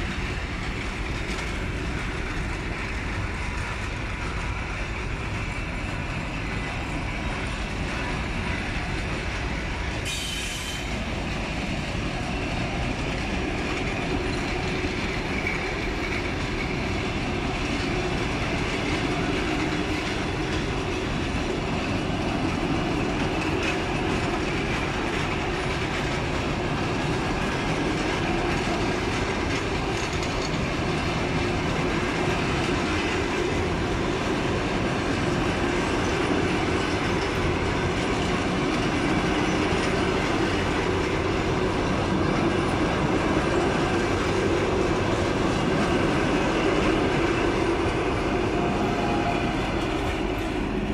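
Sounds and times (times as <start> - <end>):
clicking over rail joints: 0.0 - 50.9
train wheels on rails: 0.0 - 50.9.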